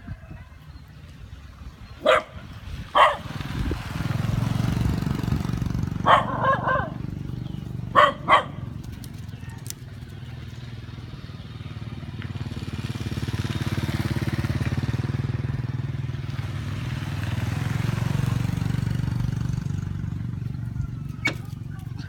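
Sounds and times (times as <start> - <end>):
small engine running: 3.0 - 15.0.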